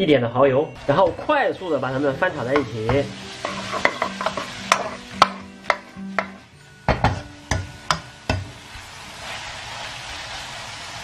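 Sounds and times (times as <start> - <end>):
frying hiss: 0.8 - 11.0
metal spatula clacking against a wok: 2.5 - 6.4, 7.0 - 8.5.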